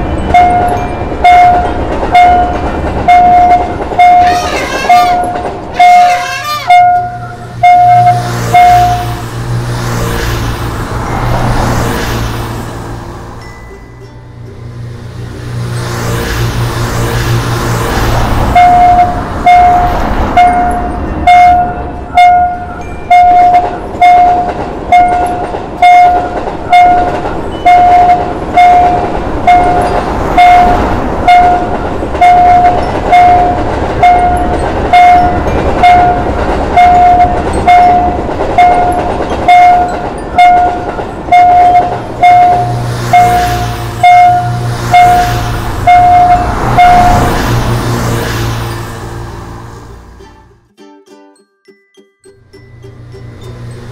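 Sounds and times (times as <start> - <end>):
level crossing warning bell: 0.0 - 9.3, 18.2 - 47.6, 52.3 - 53.9
road vehicle engines: 0.0 - 50.7, 52.2 - 53.9
passing train: 0.0 - 53.9.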